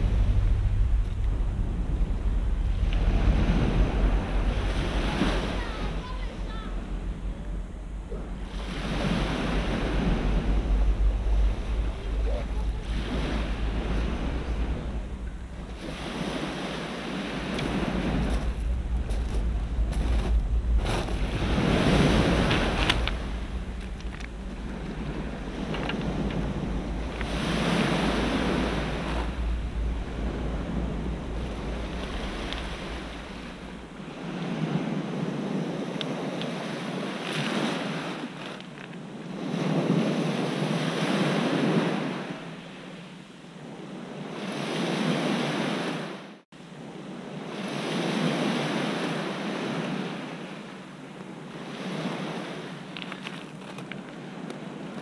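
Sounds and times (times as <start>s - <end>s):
wind buffeting microphone: 0.0s - 46.3s
waves breaking on pebbles: 8.4s - 42.4s, 51.4s - 55.0s.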